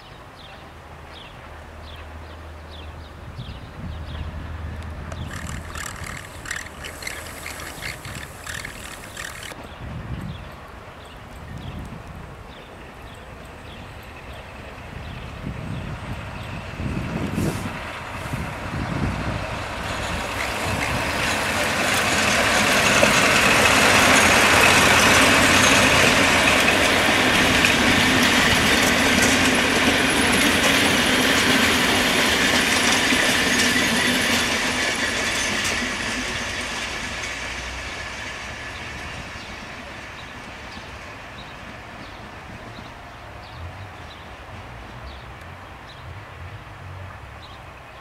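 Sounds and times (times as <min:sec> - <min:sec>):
diesel locomotive engine: 0:00.0 - 0:48.0
train wheels on rails: 0:03.4 - 0:45.6.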